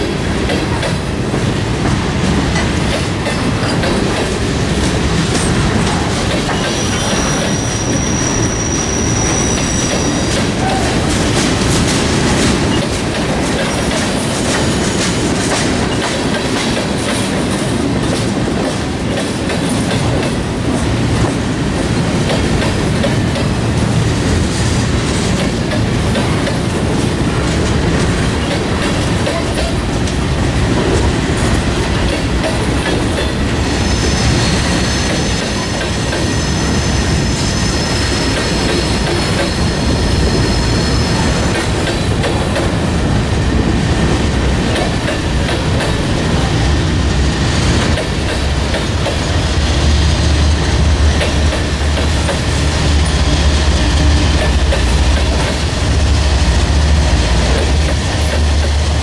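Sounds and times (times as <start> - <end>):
steel wheels rumbling on rail: 0.0 - 59.0
high-pitched wheel squeal: 6.8 - 10.8.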